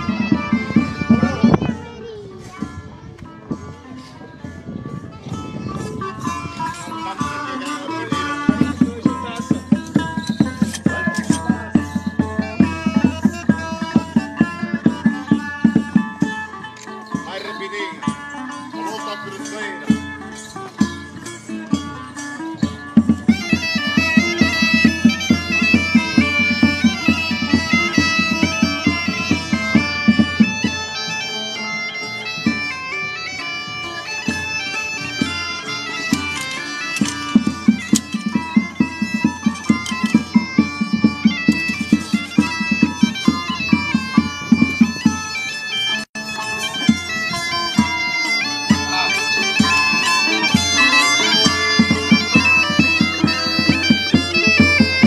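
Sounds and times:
bagpipe playing a tune: 0.0 - 2.1, 5.2 - 55.0
drum beating: 0.0 - 3.6, 4.4 - 55.0.

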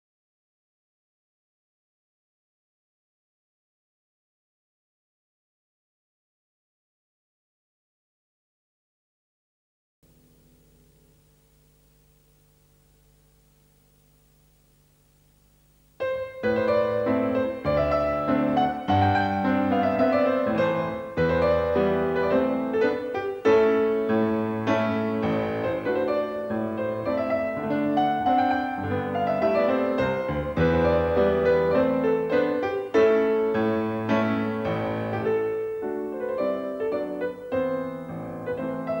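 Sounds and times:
piano music: 16.0 - 39.0.

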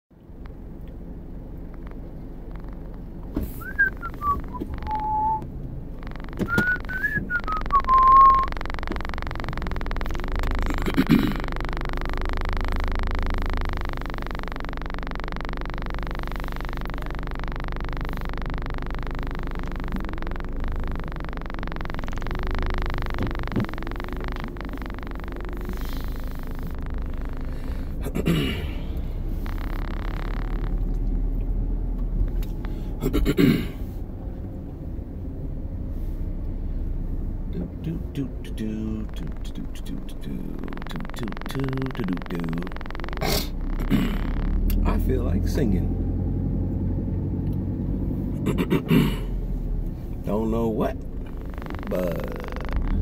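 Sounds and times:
car cabin hum: 0.2 - 53.0
person whistling: 3.6 - 5.4, 6.4 - 8.5.

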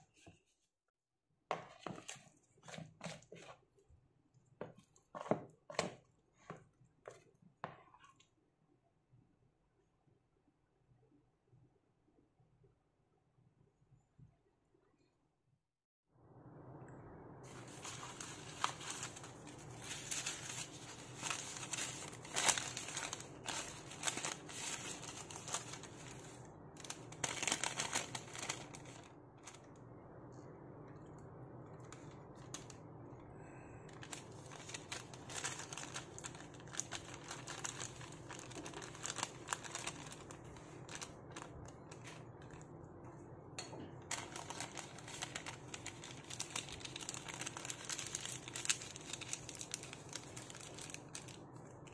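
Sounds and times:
parchment paper rustling: 1.5 - 3.8, 17.5 - 29.8, 33.5 - 42.7, 43.9 - 51.9.

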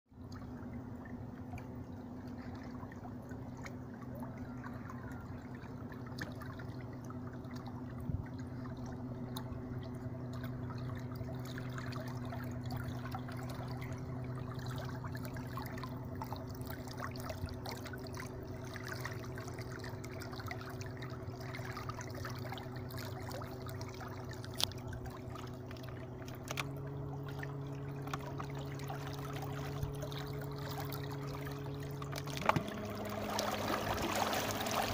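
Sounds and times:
trolling motor humming: 0.1 - 34.9
water rippling and splashing: 0.1 - 34.9.

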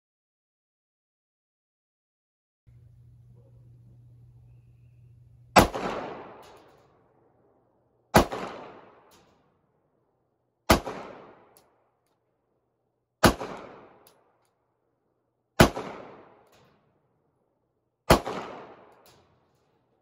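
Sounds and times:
pistol shots echoing: 2.8 - 6.8, 8.1 - 9.2, 10.7 - 11.6, 13.2 - 14.1, 15.6 - 16.5, 18.1 - 19.3.

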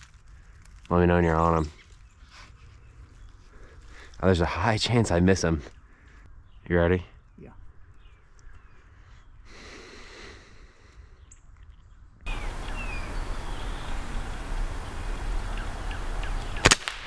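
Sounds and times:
faint bird chirps: 10.9 - 16.7
pellet rifle firing: 16.5 - 17.0.

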